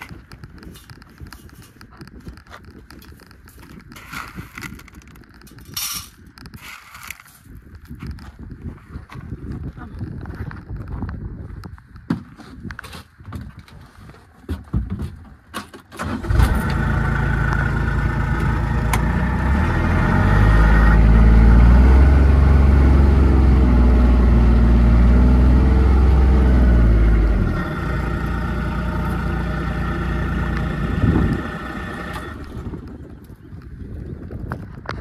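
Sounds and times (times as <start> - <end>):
vehicle engine running: 16.0 - 33.0.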